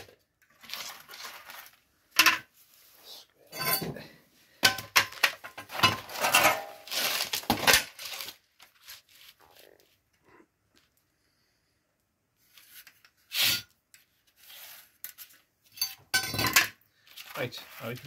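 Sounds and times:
cardboard rustling and scraping: 0:00.0 - 0:01.9, 0:06.0 - 0:10.0, 0:17.0 - 0:18.0.

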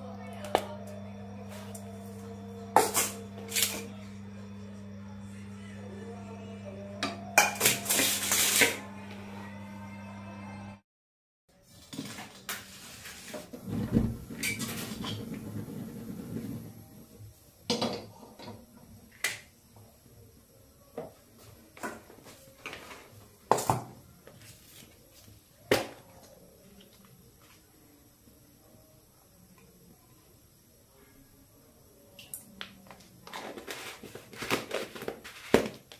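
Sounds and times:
metal pots and utensils clanking: 0:02.8 - 0:03.8.

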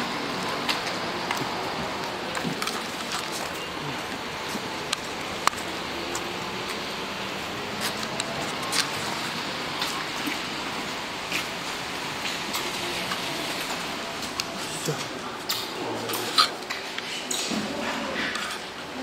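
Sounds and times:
rain hiss: 0:00.0 - 0:15.8.

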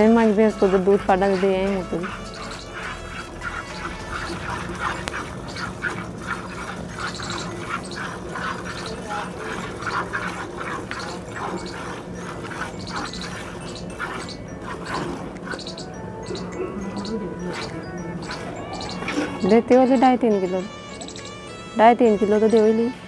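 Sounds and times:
milk squirting into steel pail: 0:00.2 - 0:15.6.

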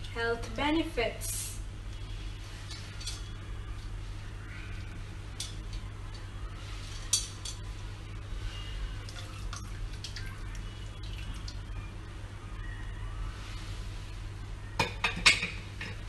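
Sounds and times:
steady low hum: 0:00.0 - 0:16.0
juice dripping into soup: 0:07.3 - 0:12.7.

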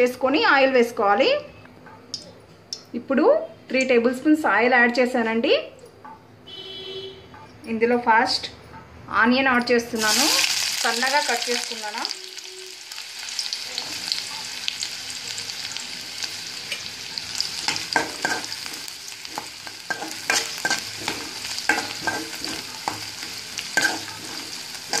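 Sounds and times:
onions sizzling in hot oil: 0:10.0 - 0:25.0
spoon scraping a metal pan: 0:17.7 - 0:25.0.

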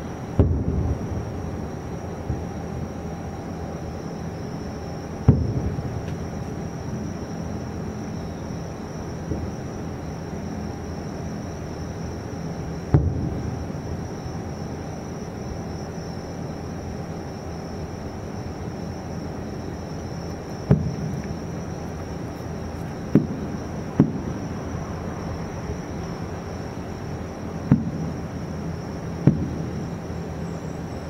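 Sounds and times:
background hiss: 0:00.0 - 0:31.0
distant firework booms: 0:00.4 - 0:01.4, 0:05.2 - 0:06.4, 0:12.9 - 0:13.9, 0:20.6 - 0:21.4, 0:23.0 - 0:24.5, 0:27.7 - 0:28.2, 0:29.2 - 0:29.8.

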